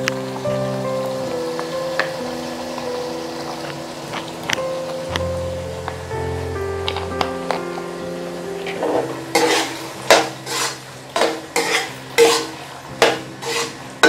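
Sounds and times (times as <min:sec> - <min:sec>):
light frying sizzle: 0:00.0 - 0:14.0
metal spoon scraping a pan: 0:08.7 - 0:14.0.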